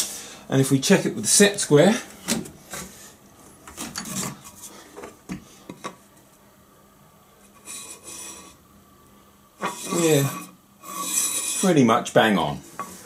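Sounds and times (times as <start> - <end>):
scraping rubs: 7.5 - 8.6, 9.6 - 11.8.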